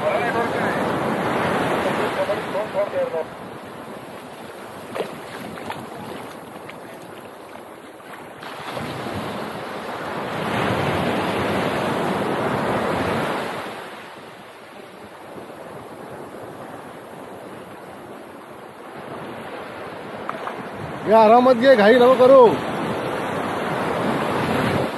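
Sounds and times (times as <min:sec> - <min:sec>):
sea surf washing on beach: 0:00.0 - 0:24.9
wind on microphone: 0:22.7 - 0:24.9.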